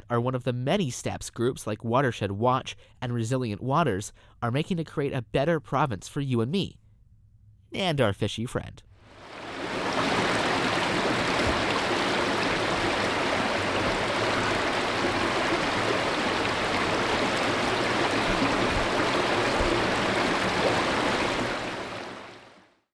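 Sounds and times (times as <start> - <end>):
water rushing down a flume: 9.2 - 22.6.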